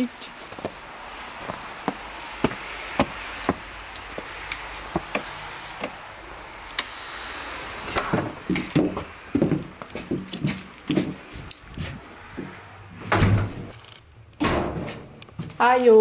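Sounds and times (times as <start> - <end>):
footsteps on paved path: 0.2 - 6.0, 8.0 - 12.6, 15.3 - 15.7.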